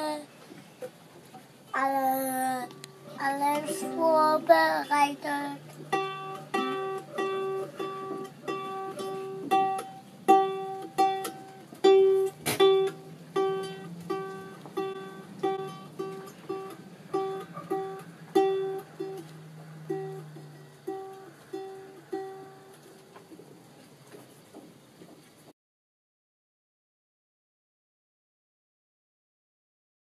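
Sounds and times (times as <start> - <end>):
ukulele plucked: 1.7 - 23.4.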